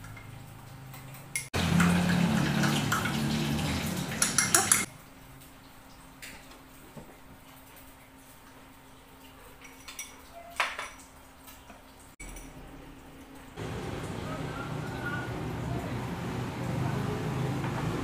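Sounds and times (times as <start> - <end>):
spoon clinking in glass: 4.1 - 4.9
glass and utensils set down: 9.9 - 11.0.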